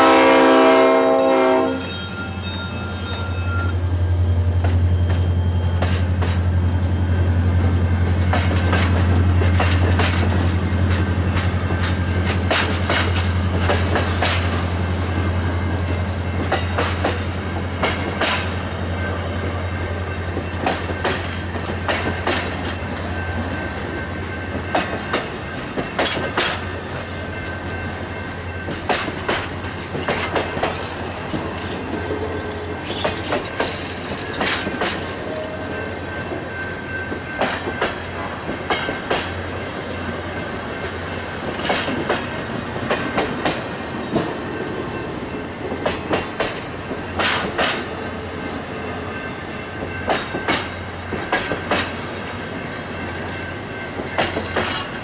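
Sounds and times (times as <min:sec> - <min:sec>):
train rolling rumble: 0:00.0 - 0:55.0
wheels squealing on track: 0:01.8 - 0:03.8
train wheels clicking over rail joints: 0:04.4 - 0:55.0.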